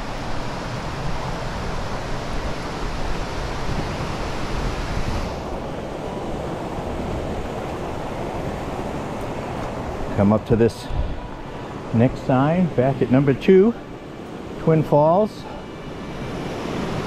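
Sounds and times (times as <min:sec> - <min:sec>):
wind rumble on microphone: 0:00.0 - 0:11.4.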